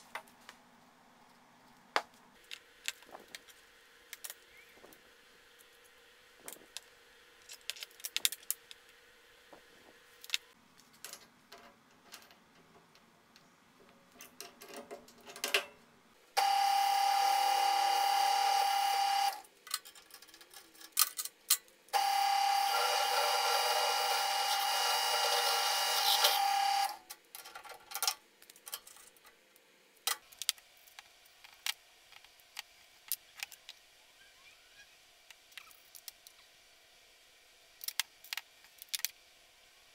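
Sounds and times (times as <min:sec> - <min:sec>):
drill cutting into steel tube: 0:16.4 - 0:19.4, 0:22.0 - 0:27.0.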